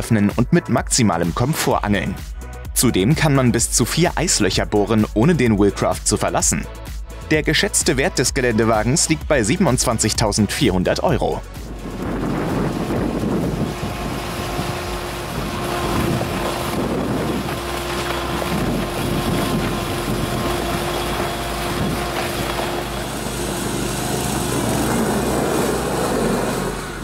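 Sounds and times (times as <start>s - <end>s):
engine running: 6.6s - 27.0s
wheels splashing water: 8.4s - 27.0s.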